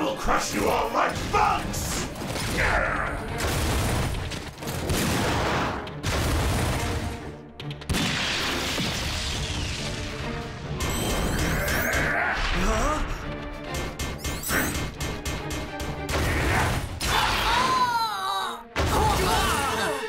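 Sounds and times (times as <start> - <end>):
action music: 0.0 - 20.0.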